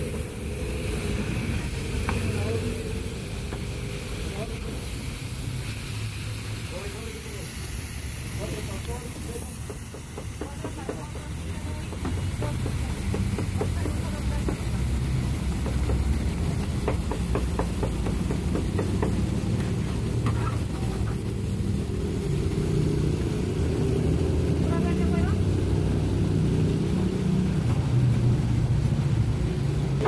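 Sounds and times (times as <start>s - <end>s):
low engine-like rumble: 0.0s - 30.0s
knife chopping meat on wood: 16.8s - 19.2s.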